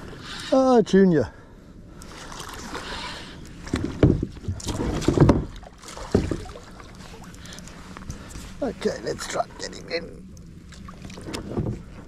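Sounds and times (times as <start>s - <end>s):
knocks and rustles of rod and reel: 2.0s - 8.6s, 10.3s - 12.0s.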